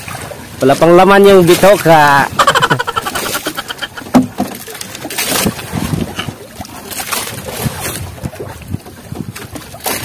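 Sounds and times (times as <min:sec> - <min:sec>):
water splashing: 0:00.0 - 0:10.0
knocks on wooden boat: 0:04.0 - 0:04.6.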